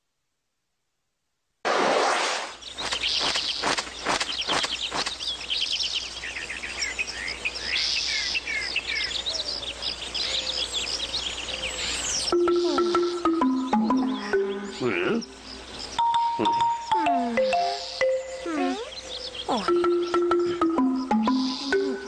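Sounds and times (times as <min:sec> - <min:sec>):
small birds chirping: 0:02.4 - 0:22.0
sharp ticks: 0:02.8 - 0:05.2
music: 0:12.3 - 0:15.2, 0:16.0 - 0:18.8, 0:19.5 - 0:22.0.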